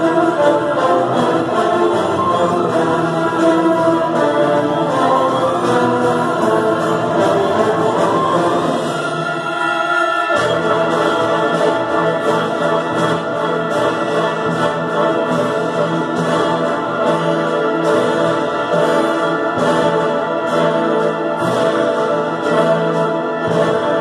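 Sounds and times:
orchestra playing: 0.0 - 24.0.

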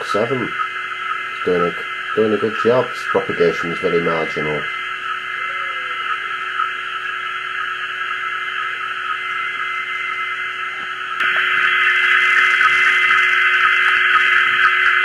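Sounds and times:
faint steady radio tone: 0.0 - 15.0
radio hiss: 0.0 - 15.0
radio click: 10.8 - 15.0.

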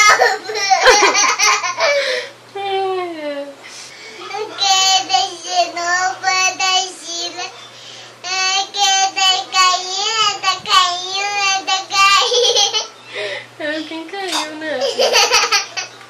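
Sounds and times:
child singing: 4.3 - 7.6, 8.2 - 12.2.

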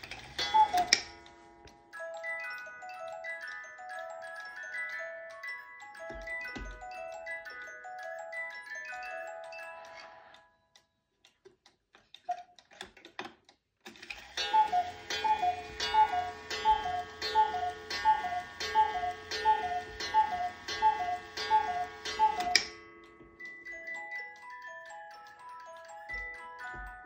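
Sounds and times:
clock mechanism click: 0.0 - 1.4, 12.1 - 22.8
faint clicks of clock hands: 0.0 - 4.6, 9.8 - 27.0
cuckoo clock calling: 0.0 - 11.1, 12.1 - 12.9, 13.9 - 27.0.

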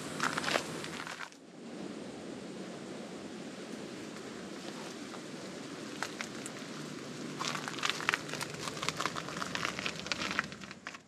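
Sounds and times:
steady outdoor hiss: 0.0 - 11.0
footsteps crunching dry leaves: 0.2 - 1.4, 5.9 - 11.0.

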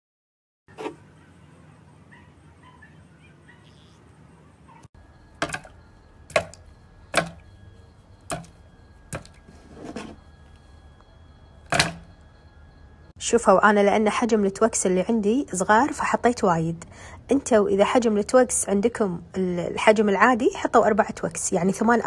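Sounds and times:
knocks on plastic blender jar: 6.3 - 7.4.

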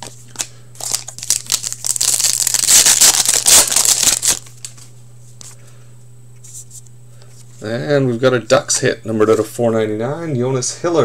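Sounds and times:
foil wrapper tearing and crinkling: 0.0 - 4.8.

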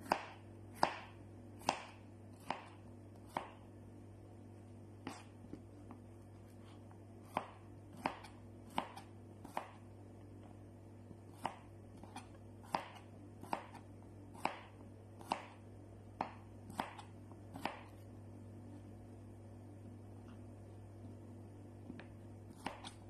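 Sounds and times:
knife chopping on cutting board: 0.0 - 3.6, 5.0 - 9.8, 11.3 - 15.6, 16.2 - 18.0, 21.8 - 23.0
steady low hum: 0.0 - 23.0.

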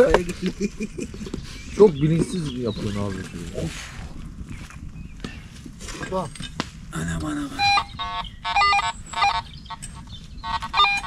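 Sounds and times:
rustling on dry leaf litter: 2.4 - 4.8.

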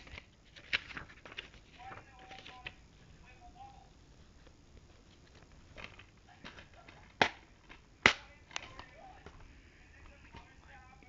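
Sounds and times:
plastic disc case clicks: 5.8 - 9.0.

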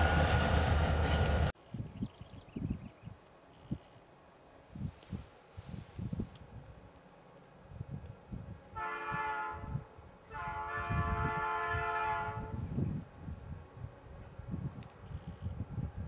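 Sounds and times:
locomotive air horn blasts: 8.7 - 12.7.

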